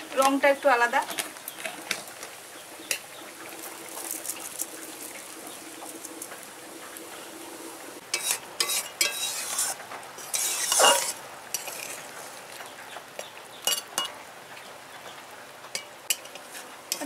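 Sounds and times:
curry simmering with faint hiss: 0.0 - 17.0
liquid pouring into pan: 3.3 - 9.6
metal spatula scraping pan: 8.0 - 12.4.

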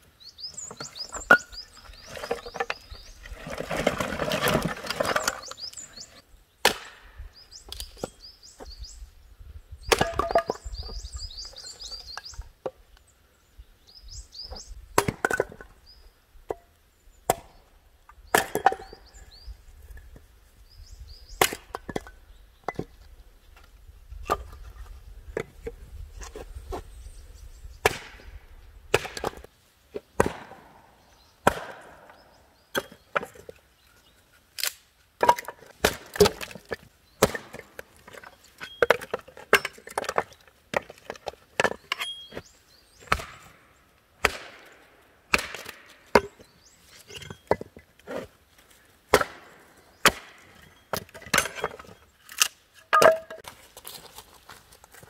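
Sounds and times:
chopping strikes on wood: 6.6 - 7.0, 18.3 - 19.0, 27.8 - 28.2, 28.9 - 29.5, 30.2 - 30.7, 31.4 - 32.2, 35.3 - 36.6, 43.0 - 43.5, 44.2 - 44.7, 45.3 - 46.4, 49.1 - 50.4.

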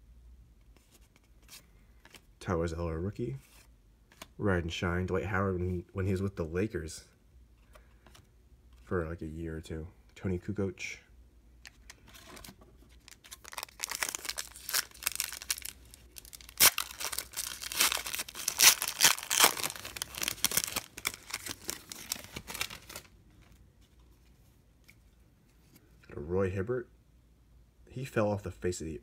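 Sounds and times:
foil wrapper tearing and crinkling: 13.0 - 23.1.

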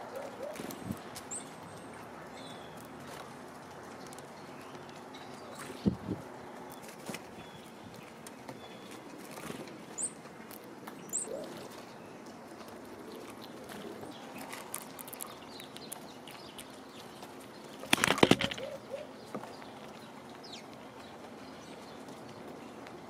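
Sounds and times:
squirrel scrabbling on wooden feeder: 13.2 - 19.6.

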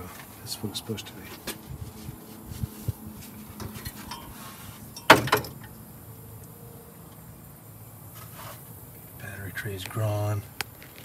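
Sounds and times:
sharp knocks: 5.1 - 5.6.

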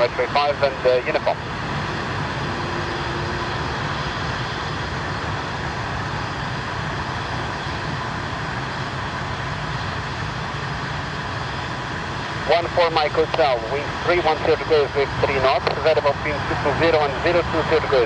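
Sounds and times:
jet engines rumbling with whine: 0.0 - 18.0.

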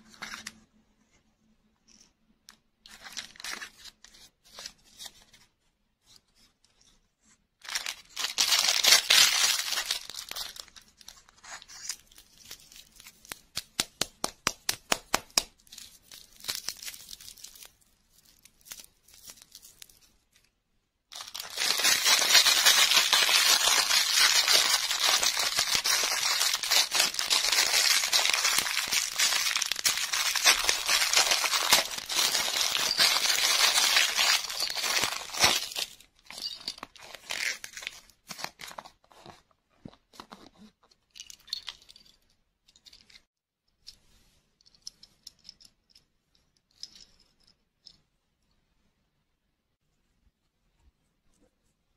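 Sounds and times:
plastic wrappers crinkling: 7.6 - 13.6, 15.6 - 20.5, 21.1 - 39.0.

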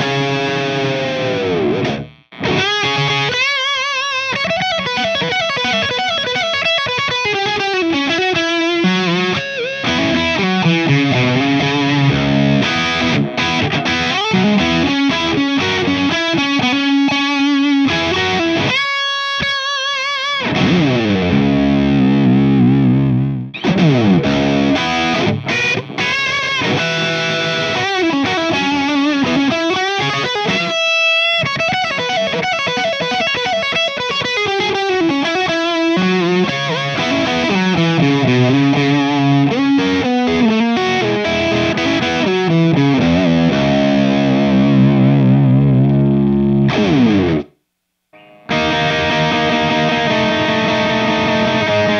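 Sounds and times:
distorted electric guitar lead: 0.0 - 51.9.

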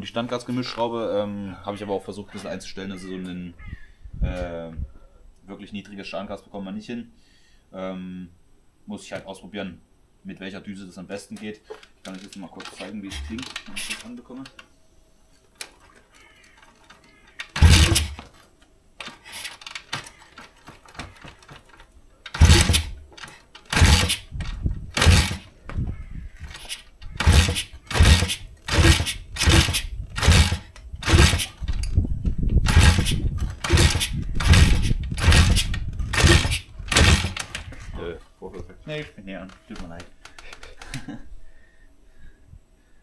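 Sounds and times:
motorbike engine kick-started: 17.5 - 18.2, 22.3 - 25.5, 26.5 - 31.8, 32.6 - 37.6.

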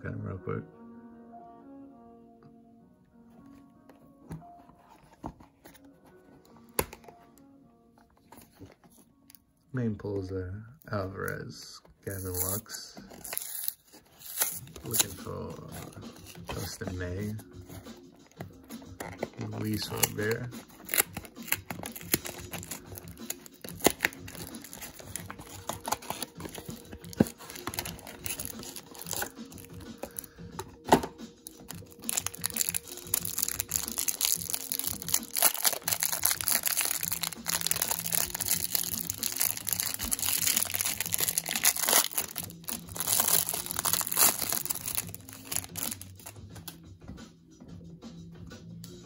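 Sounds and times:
soft background music: 0.0 - 49.0
plastic wrapper crinkling: 12.2 - 16.8, 19.0 - 30.3, 31.5 - 46.3
cardboard box tearing: 20.7 - 29.3.

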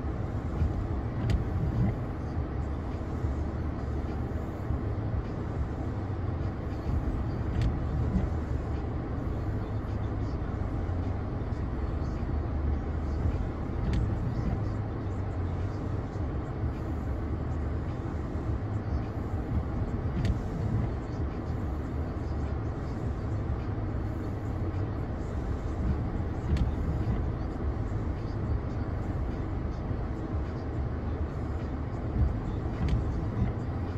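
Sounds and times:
vehicle road noise rumble: 0.0 - 33.9
faint clicks: 19.5 - 21.0, 25.8 - 27.3, 32.0 - 33.7.

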